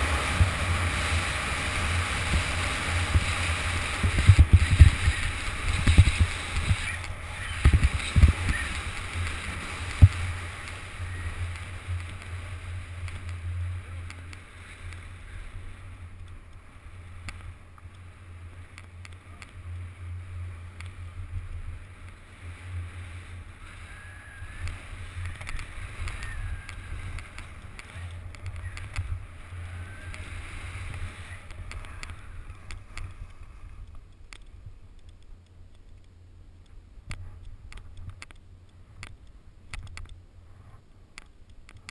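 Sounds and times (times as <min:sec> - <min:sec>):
skis scraping over snow: 0:00.0 - 0:33.9
wind rumble: 0:00.0 - 0:41.9.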